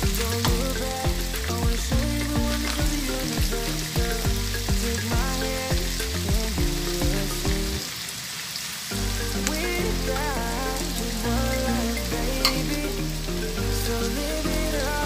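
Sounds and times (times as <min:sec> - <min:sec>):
background music: 0:00.0 - 0:07.9, 0:08.9 - 0:15.0
food sizzling in a pan: 0:07.8 - 0:09.0.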